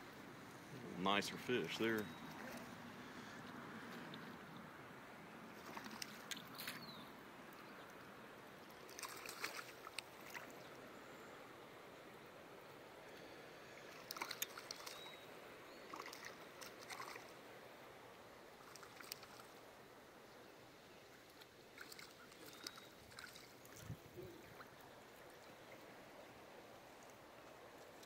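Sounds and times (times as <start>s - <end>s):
faint rush of current: 0.4s - 3.4s
water lapping and splashing: 0.6s - 4.6s, 5.4s - 10.9s, 13.1s - 19.9s, 21.1s - 28.0s.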